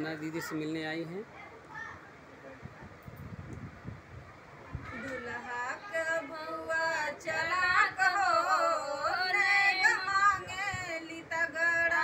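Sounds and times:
woman singing folk song: 5.2s - 12.0s.

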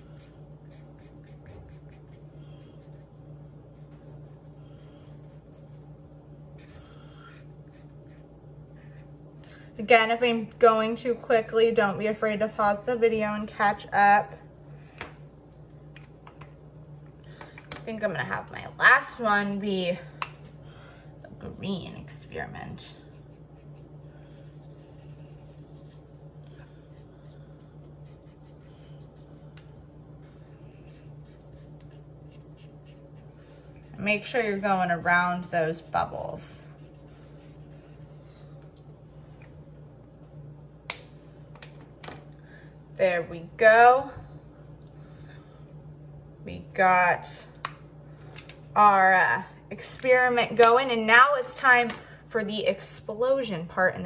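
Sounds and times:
marker scribbling on paper: 0.0s - 5.9s, 23.1s - 26.2s, 28.0s - 29.4s, 30.8s - 34.4s, 36.8s - 37.8s
steady low hum: 0.0s - 54.0s.

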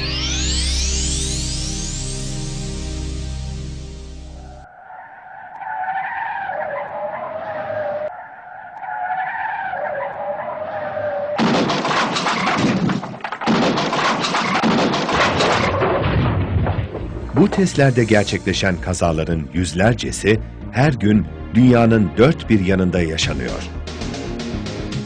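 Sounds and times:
tyres squealing: 4.4s - 13.4s
car crash crunching metal: 9.6s - 17.9s.

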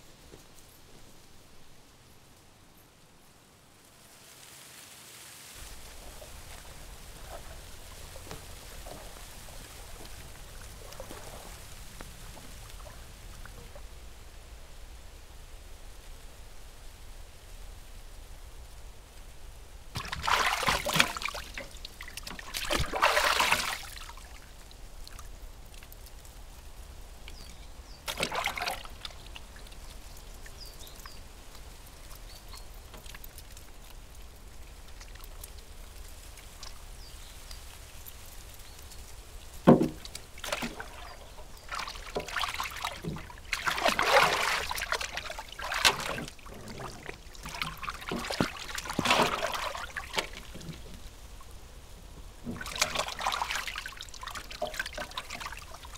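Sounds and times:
bathwater splashing: 5.6s - 13.8s, 20.0s - 24.6s, 28.0s - 31.0s, 39.5s - 51.6s, 52.3s - 55.9s.

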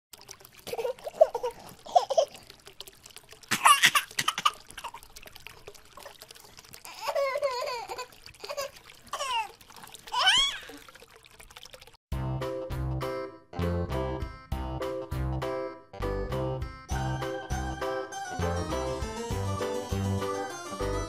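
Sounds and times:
water sloshing in a basin: 0.1s - 12.0s.

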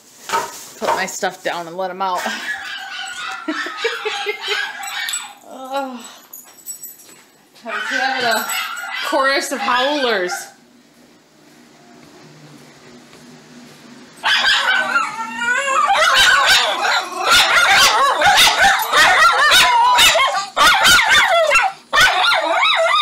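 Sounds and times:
dogs barking yipping and howling: 2.2s - 5.4s, 7.7s - 10.6s, 14.2s - 23.0s.

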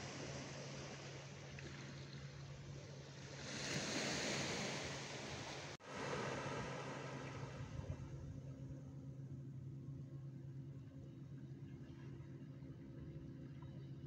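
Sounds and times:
small waves washing ashore: 0.0s - 8.6s
steady low hum: 0.0s - 14.0s.

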